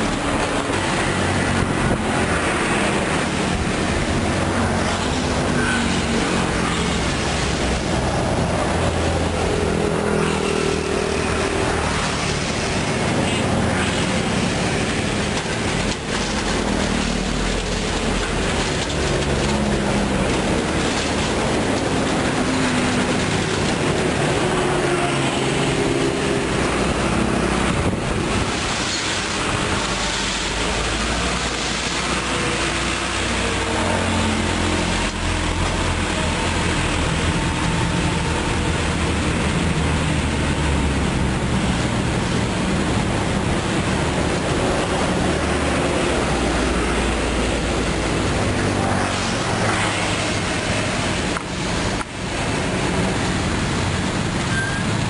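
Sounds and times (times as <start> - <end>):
dense rushing noise: 0.0 - 55.0
diesel truck engine running: 0.0 - 55.0.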